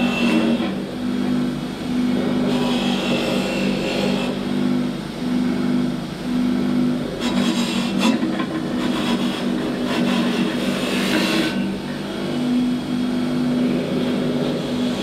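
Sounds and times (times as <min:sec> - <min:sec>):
power tool humming: 0:00.0 - 0:15.0.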